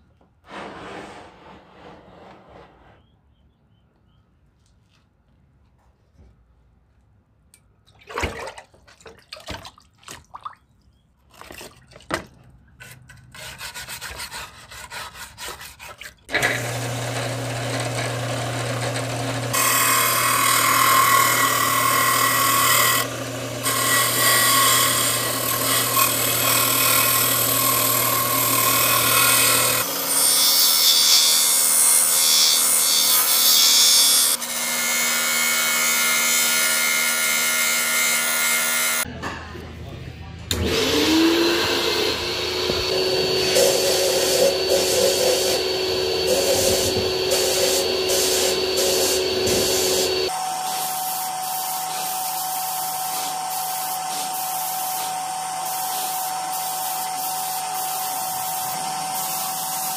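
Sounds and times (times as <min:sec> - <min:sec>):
hand work clicks and scraping: 0:12.4 - 0:16.6
power tool grinding: 0:16.2 - 0:39.1, 0:40.5 - 0:50.5.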